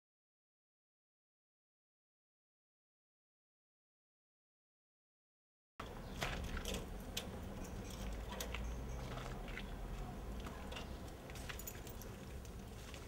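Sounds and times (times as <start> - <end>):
footsteps: 8.0 - 13.0.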